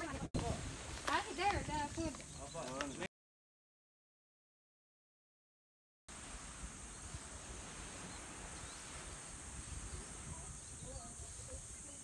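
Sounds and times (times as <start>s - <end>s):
wind rumbling on microphone: 0.0s - 2.3s, 6.1s - 12.0s.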